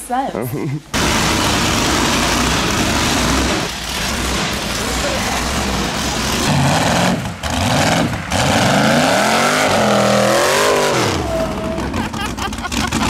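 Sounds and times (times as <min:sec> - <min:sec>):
vehicle engine revving: 0:00.9 - 0:13.0.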